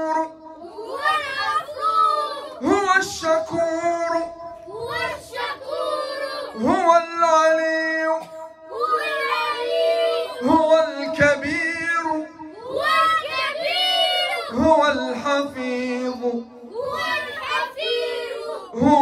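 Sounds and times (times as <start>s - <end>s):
children chanting in unison: 0.2s - 3.6s, 4.2s - 7.0s, 8.3s - 10.7s, 12.4s - 15.3s, 16.6s - 19.0s.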